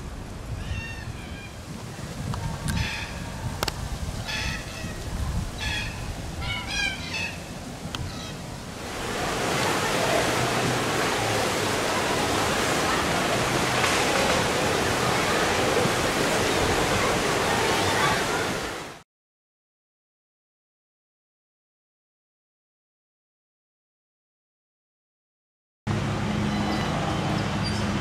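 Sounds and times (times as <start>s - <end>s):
waves surging and breaking: 0.0s - 19.0s.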